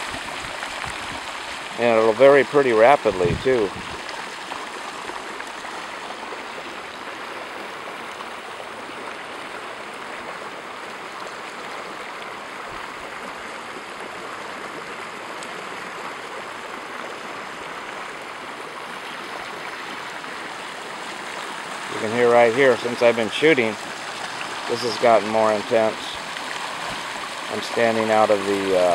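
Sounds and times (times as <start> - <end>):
floodwater rushing across a street: 0.0 - 28.9.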